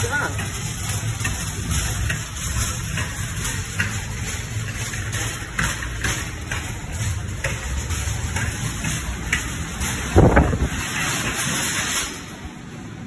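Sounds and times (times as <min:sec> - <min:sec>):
wind buffeting microphone: 0:10.1 - 0:10.8.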